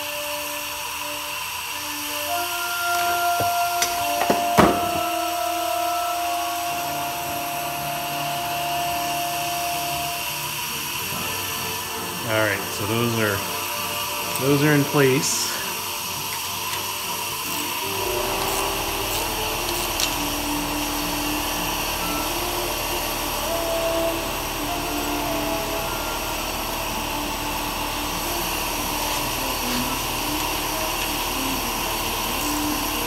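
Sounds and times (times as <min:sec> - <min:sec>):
machine whirring hum: 0:00.0 - 0:33.0.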